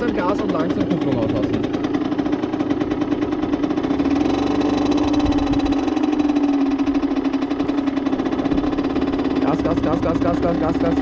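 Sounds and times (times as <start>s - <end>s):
moped engine running: 0.0s - 11.0s.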